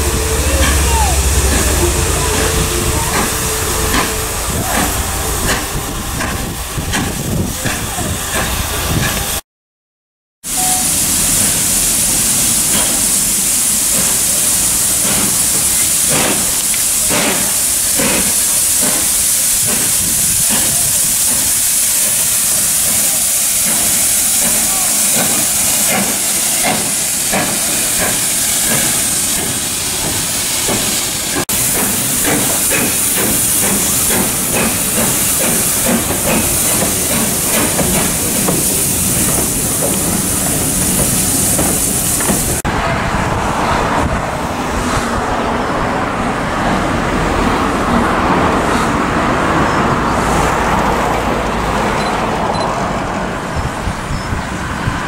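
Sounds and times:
fast rhythmic train clatter: 0.0 - 9.4, 10.6 - 42.7
loud hiss of steam: 0.0 - 9.4, 10.5 - 45.3.

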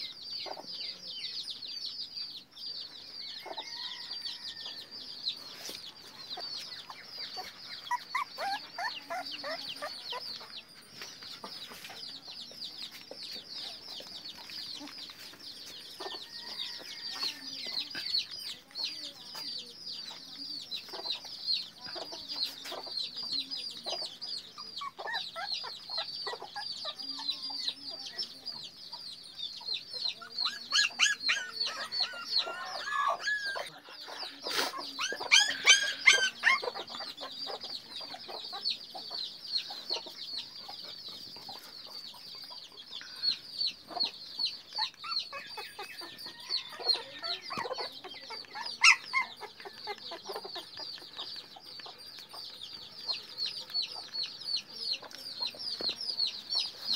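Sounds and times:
puppies whining and squeaking: 5.6 - 19.5, 23.9 - 28.3, 30.1 - 42.6, 43.9 - 56.0
puppy yelps: 48.8 - 49.4.

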